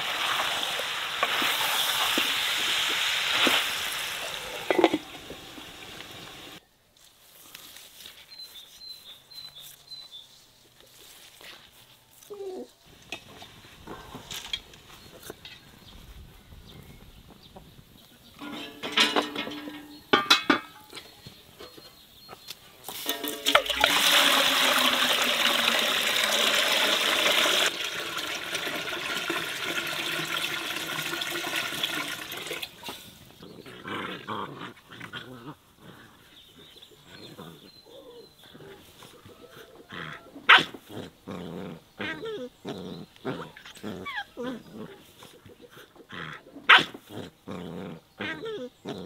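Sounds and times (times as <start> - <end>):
water pouring into a metal pot: 0.0 - 6.6, 23.0 - 33.0.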